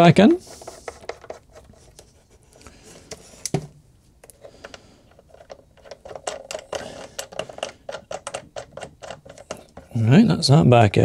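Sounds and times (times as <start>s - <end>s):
thumb screws clicking: 4.2s - 9.9s.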